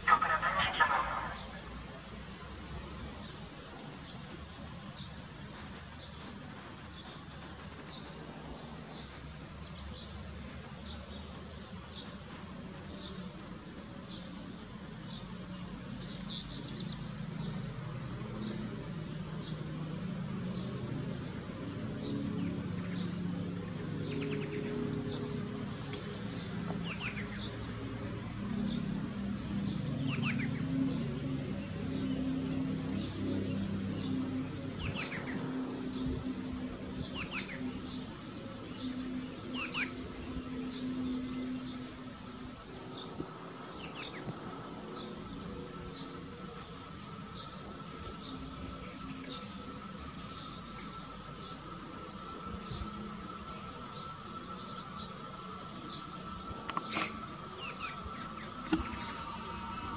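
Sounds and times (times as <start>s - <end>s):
small bird chirping: 20.4s - 28.8s, 37.0s - 43.1s, 43.7s - 59.9s.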